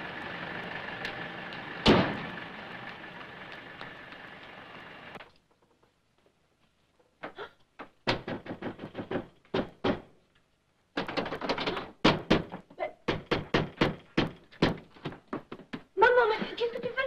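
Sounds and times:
rapid knocks and thuds: 7.8s - 10.1s, 11.0s - 15.9s.

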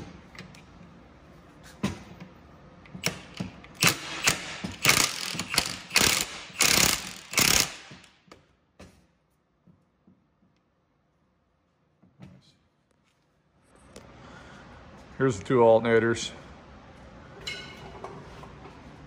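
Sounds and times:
impact wrench hammering: 2.9s - 8.2s.

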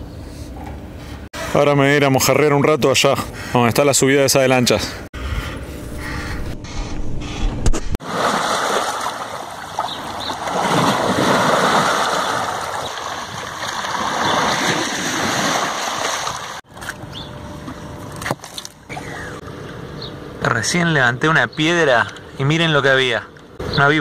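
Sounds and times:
river water splashing over stones: 8.0s - 16.6s.

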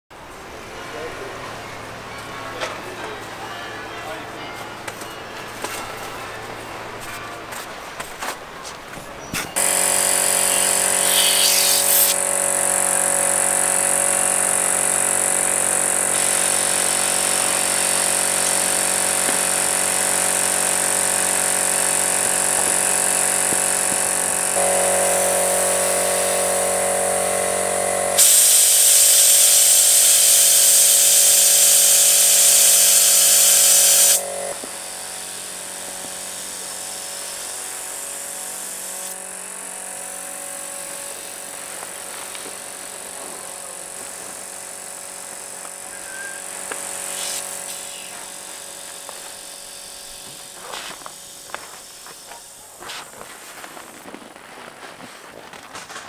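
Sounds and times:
electric air pump motor humming: 9.6s - 54.4s
air rushing hiss: 9.8s - 12.3s, 28.1s - 34.2s, 46.0s - 52.0s.

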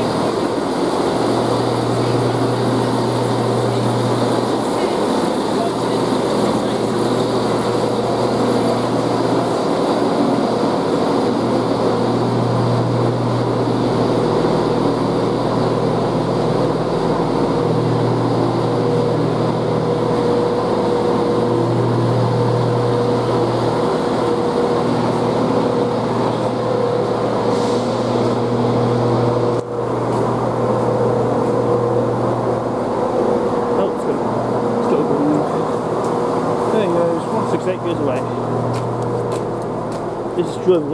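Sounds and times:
train diesel engines idling: 0.0s - 40.9s.

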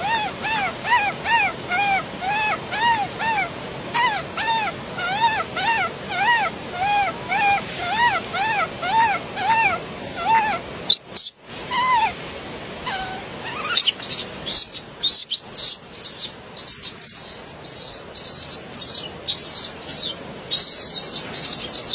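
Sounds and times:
monkey whimpering calls: 0.0s - 12.2s, 12.8s - 21.9s
high chirps: 13.5s - 21.9s.

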